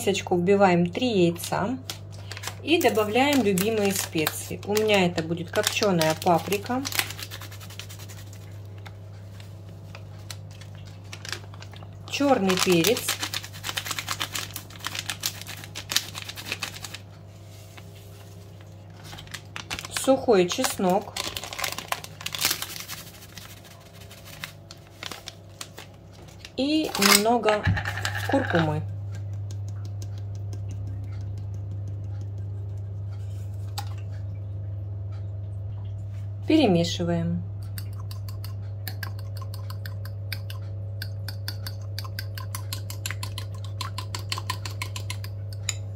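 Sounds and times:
spice sachet shaken crinkly clicking: 1.4 - 9.0, 9.8 - 17.1, 19.0 - 33.1, 37.6 - 45.7
low hum: 20.8 - 45.9.

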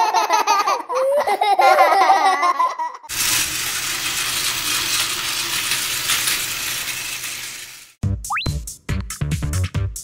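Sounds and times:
cartoon giggling: 0.0 - 3.1
toy train whirring on plastic track: 1.4 - 8.0.

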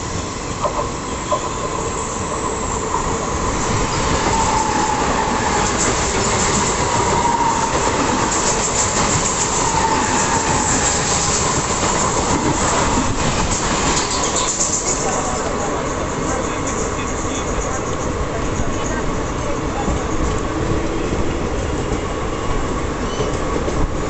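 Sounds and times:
rumble of passenger coaches: 0.0 - 24.0
faint wavering squeal: 1.0 - 5.9.

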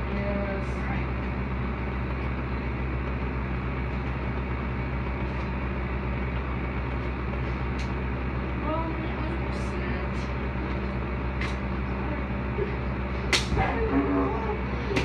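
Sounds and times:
air conditioner humming: 0.0 - 15.0.

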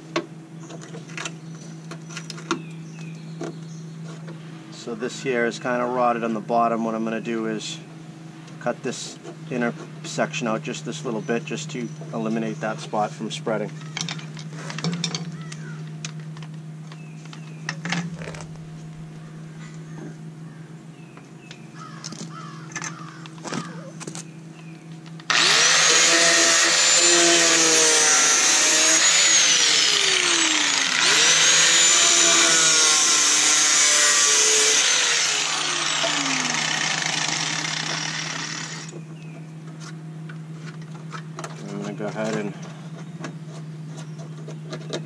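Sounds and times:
angle grinder cutting metal: 25.3 - 39.0.

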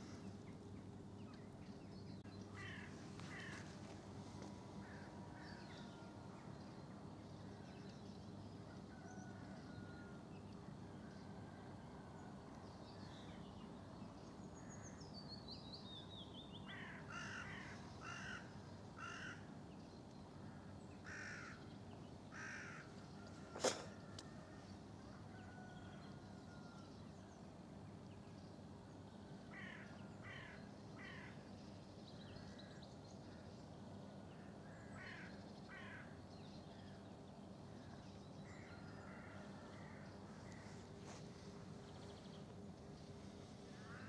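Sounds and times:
harsh caw-like bird calls: 2.5 - 4.0, 4.8 - 6.1, 16.7 - 19.5, 20.4 - 21.7, 22.3 - 24.5, 29.5 - 31.4, 34.4 - 37.0, 43.7 - 44.0.

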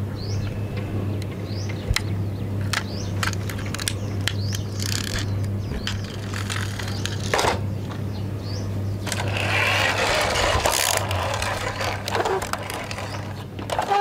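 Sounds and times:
steady low hum: 0.0 - 13.9
toy truck wheels grinding whirr: 4.8 - 7.4, 9.0 - 14.0.

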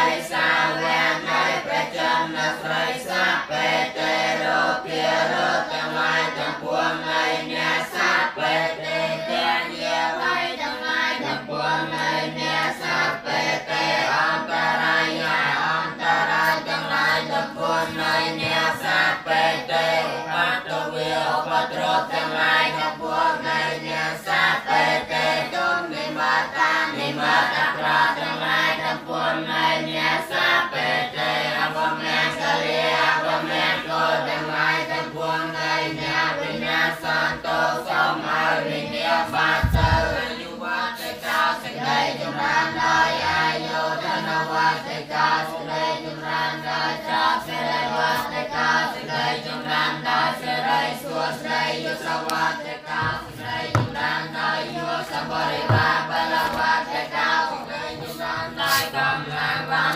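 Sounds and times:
voices chanting in unison: 0.0 - 59.9
low thump: 39.6 - 40.3, 53.0 - 54.2, 55.6 - 56.1.

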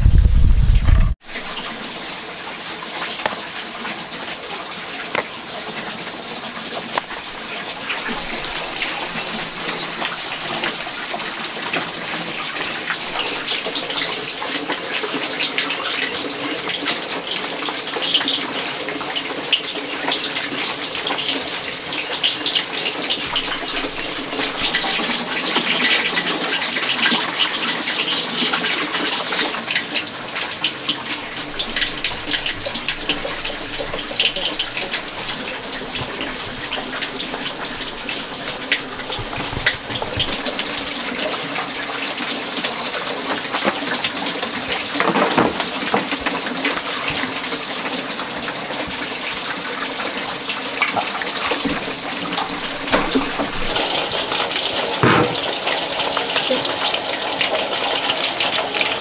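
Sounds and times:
running water: 0.0 - 59.0.

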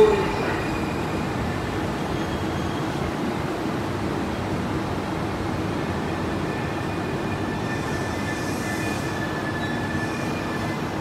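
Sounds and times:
faint high brake squeal: 0.0 - 3.0, 6.5 - 11.0.

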